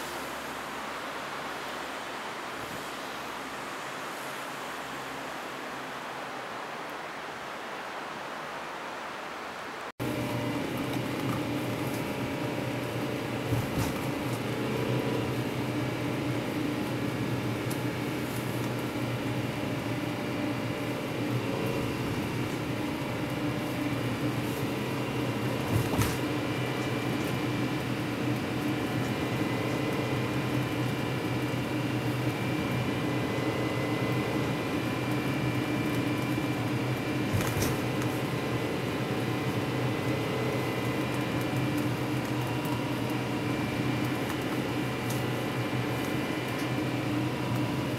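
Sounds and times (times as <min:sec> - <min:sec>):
car cabin hum: 0:10.0 - 0:27.8.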